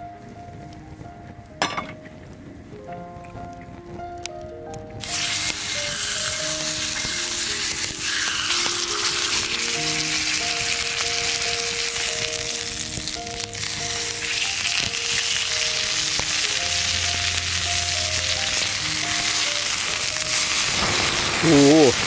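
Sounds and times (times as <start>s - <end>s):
pork sizzling in oil: 5.0s - 22.0s.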